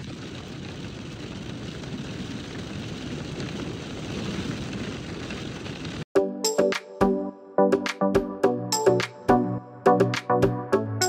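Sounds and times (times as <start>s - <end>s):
rain and wet snow on car roof: 0.0s - 6.1s.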